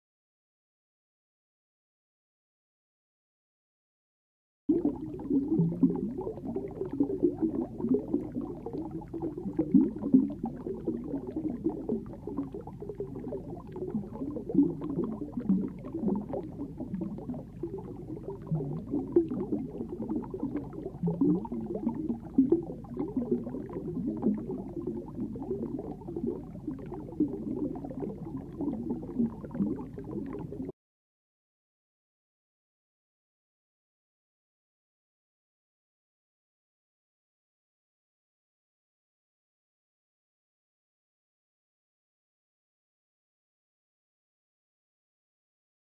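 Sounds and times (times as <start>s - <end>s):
underwater bubbling and gurgling: 4.7s - 30.7s.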